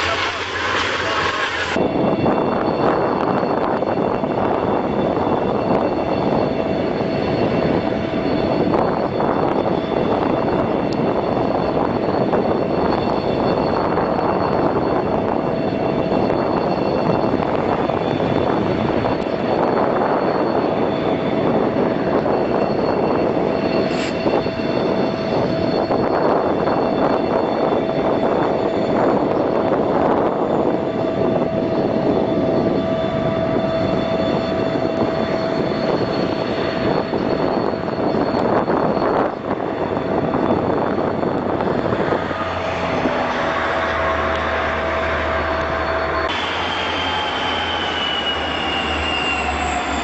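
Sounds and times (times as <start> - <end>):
heavy machinery running: 0.0 - 3.0, 31.2 - 50.0
steady whine: 0.0 - 50.0.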